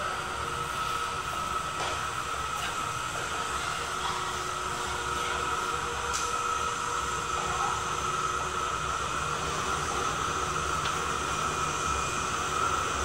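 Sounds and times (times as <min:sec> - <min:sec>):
jet engine whining hiss: 0:00.0 - 0:13.0.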